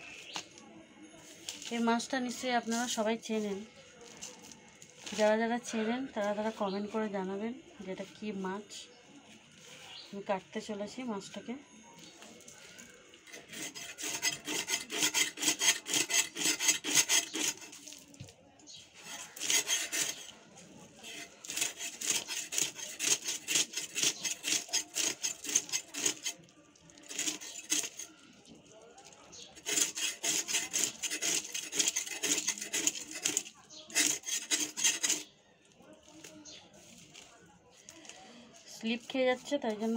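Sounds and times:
knife scraping fish scales: 12.6 - 18.1, 19.0 - 28.4, 29.0 - 35.3.

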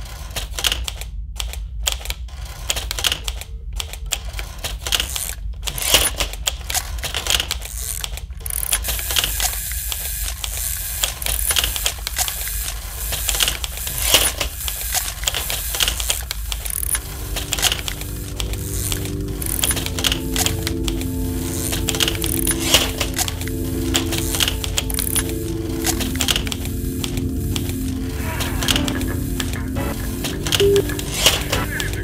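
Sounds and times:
steady low hum: 8.3 - 32.0
sustained low tones: 16.8 - 32.0.

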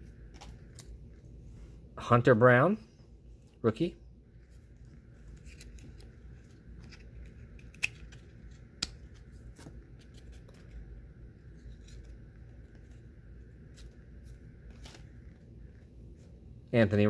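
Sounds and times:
faint high hum: 0.0 - 17.0
trading cards being shuffled: 4.4 - 15.4
card edges snapping: 6.8 - 10.7.

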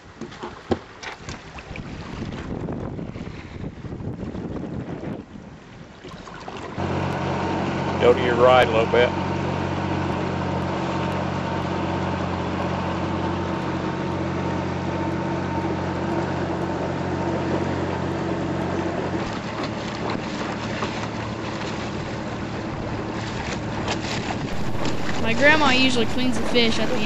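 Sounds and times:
rushing air and water: 1.1 - 8.1, 10.6 - 27.0
wind buffeting microphone: 1.7 - 5.7, 23.7 - 27.0
motorboat engine humming: 6.5 - 27.0.

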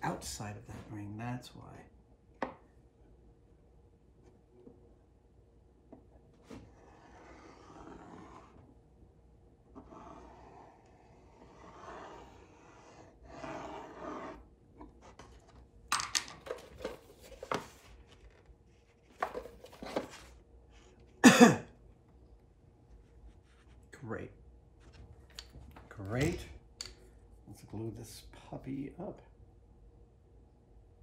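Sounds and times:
metal compass scraping plywood: 6.5 - 8.7, 9.7 - 15.6.

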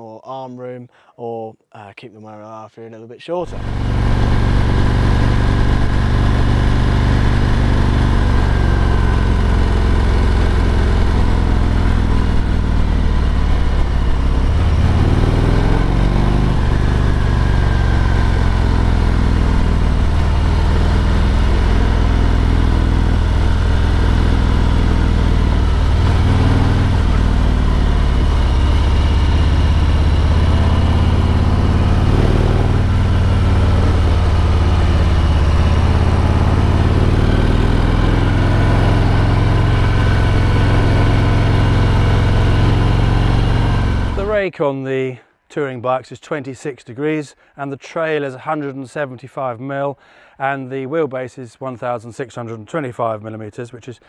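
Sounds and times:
motorcycle engine running: 3.4 - 44.4.

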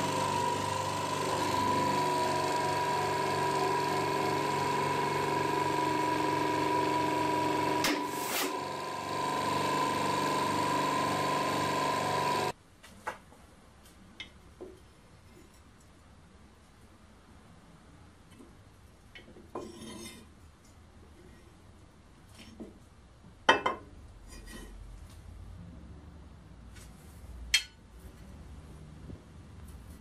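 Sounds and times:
hydraulic press humming and whining: 0.0 - 12.5.

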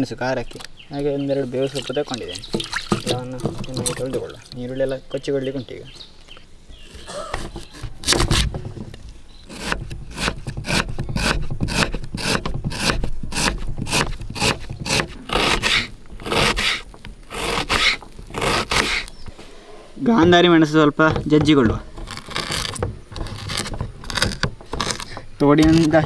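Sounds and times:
knife chopping onion on wooden board: 9.5 - 16.8.

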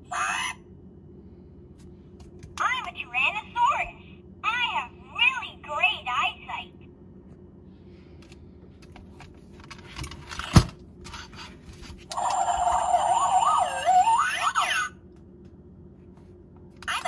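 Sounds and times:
toy electronic sound effect: 12.1 - 14.9.

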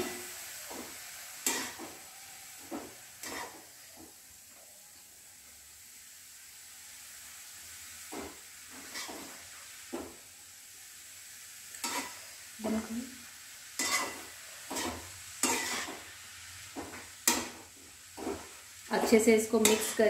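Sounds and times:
metal spatula scraping a pan: 0.0 - 3.8, 8.1 - 9.6, 11.8 - 12.4, 13.8 - 20.0
faint sizzle: 0.0 - 20.0.

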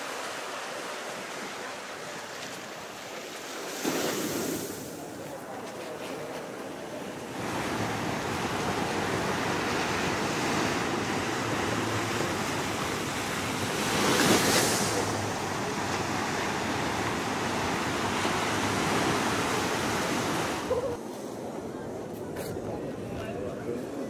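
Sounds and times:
ocean surf washing in: 3.2 - 5.2, 7.0 - 21.0
wave breaking: 7.2 - 21.0.

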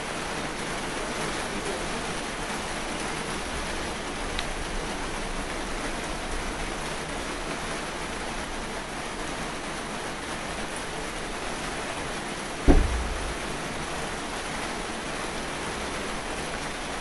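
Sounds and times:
steady hiss: 9.4 - 17.0.

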